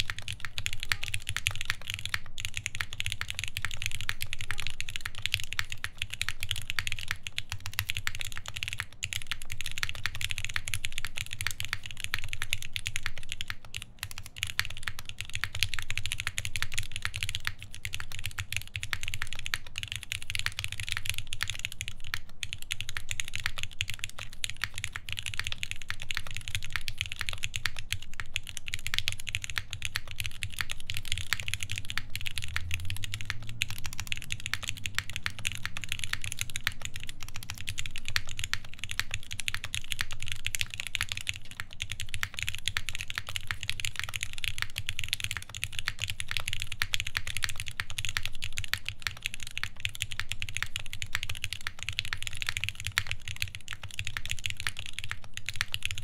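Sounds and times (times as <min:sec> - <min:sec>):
mechanical keyboard typing: 0:00.0 - 0:56.0.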